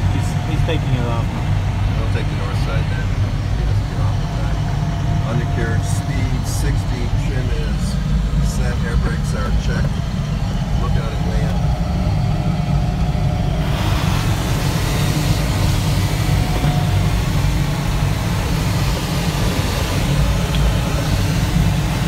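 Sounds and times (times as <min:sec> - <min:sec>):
cockpit airflow rumble: 0:00.0 - 0:22.0
airflow hiss: 0:12.5 - 0:22.0.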